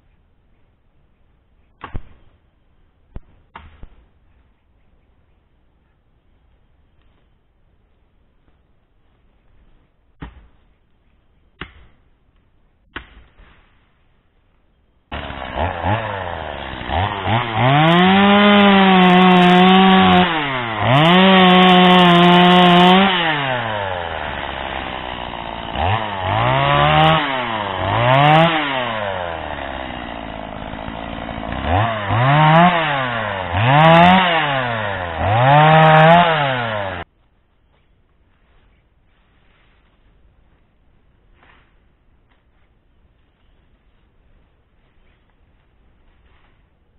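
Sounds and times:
chainsaw revving: 15.1s - 37.1s.

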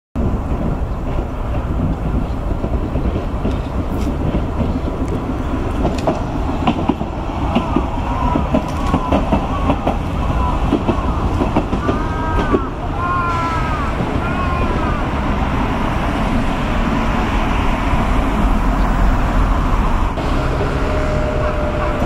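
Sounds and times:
wheels clicking over rail joints: 0.2s - 17.3s
streetcar rumbling past: 0.2s - 22.0s
wheels squealing on rails: 0.2s - 22.0s.

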